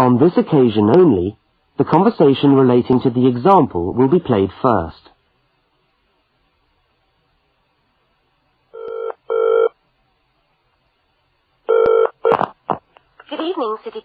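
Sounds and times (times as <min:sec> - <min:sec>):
telephone ringing: 0:08.8 - 0:09.8, 0:11.7 - 0:12.4.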